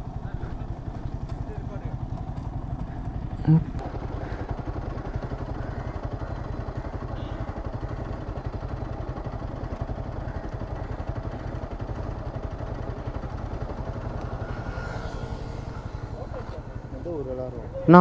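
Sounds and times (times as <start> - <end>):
motorcycle engine idling: 0.0 - 18.0.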